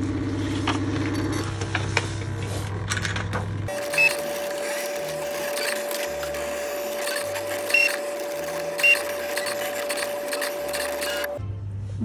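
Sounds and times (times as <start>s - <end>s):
cutting machine motor hum: 3.7s - 11.4s.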